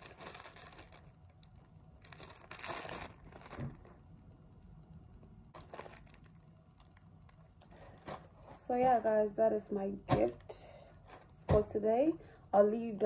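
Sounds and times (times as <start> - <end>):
plastic packaging crinkling: 0.0 - 4.0, 5.5 - 8.7.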